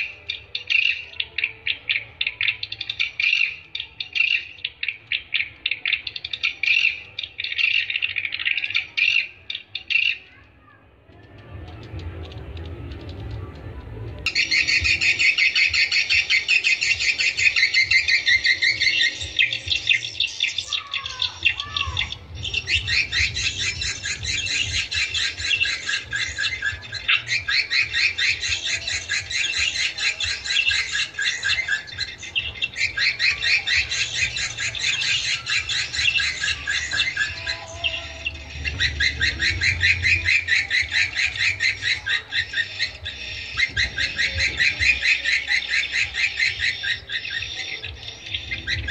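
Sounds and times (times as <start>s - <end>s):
swiftlets twittering chirps: 0.0s - 48.9s.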